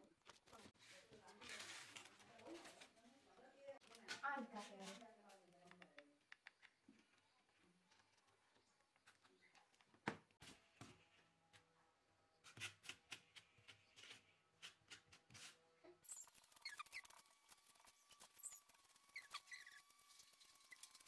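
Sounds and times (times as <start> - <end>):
spoon scraping and squeaking: 15.4 - 21.0.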